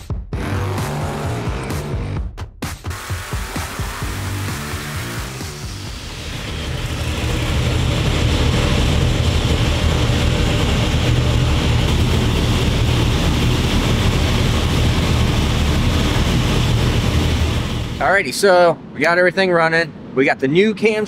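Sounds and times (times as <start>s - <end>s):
vee eight engine running: 3.5s - 18.9s.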